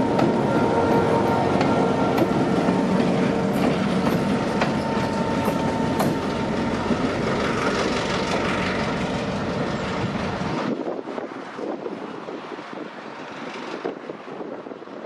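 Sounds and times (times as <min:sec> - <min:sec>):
train horn: 0:00.0 - 0:07.0
diesel locomotive engine: 0:00.0 - 0:15.0
wheels rumbling on rail: 0:00.0 - 0:15.0.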